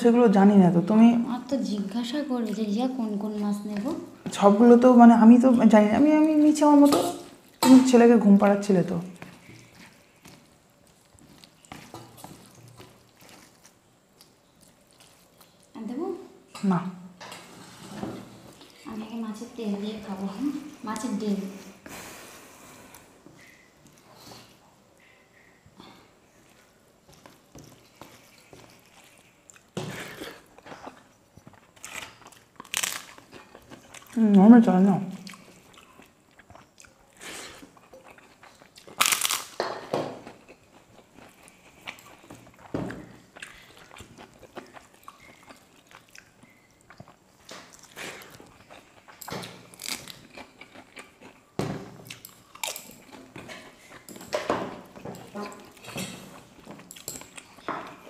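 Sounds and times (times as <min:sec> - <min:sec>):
chewing: 0:09.0 - 0:15.8, 0:22.9 - 0:34.3, 0:35.1 - 0:39.6, 0:40.2 - 0:58.0.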